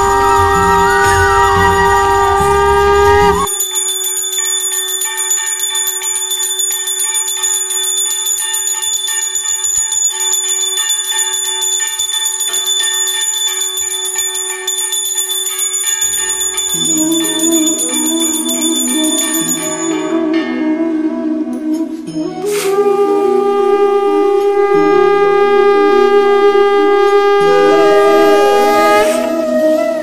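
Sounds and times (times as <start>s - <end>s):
background music: 0.0s - 3.5s, 16.6s - 30.0s
hand bell ringing rapidly: 0.0s - 20.2s.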